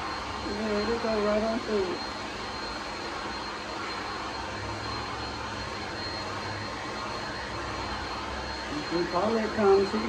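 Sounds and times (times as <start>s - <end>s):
hair dryer blowing with whine: 0.0s - 10.0s.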